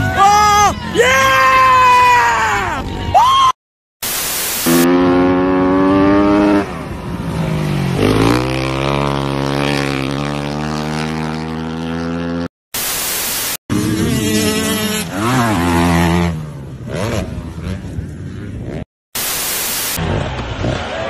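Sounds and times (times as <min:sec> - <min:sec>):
static hiss bursts: 0:04.0 - 0:04.8, 0:12.8 - 0:13.6, 0:19.2 - 0:20.0
dirt bike engine revving: 0:04.4 - 0:12.5, 0:13.7 - 0:18.9.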